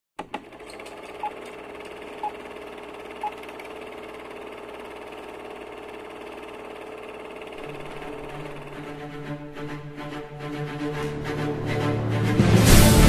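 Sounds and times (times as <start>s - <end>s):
film projector whirring: 0.2s - 9.7s.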